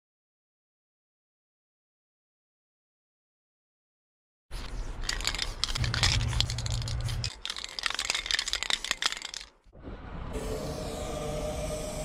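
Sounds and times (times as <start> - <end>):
spray can ball rattling: 4.6 - 9.7
spray can hissing: 4.7 - 9.4.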